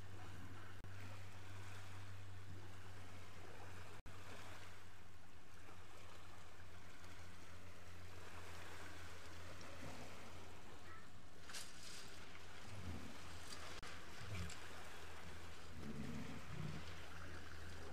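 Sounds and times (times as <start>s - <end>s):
water lapping on gravel beach: 5.5s - 17.9s.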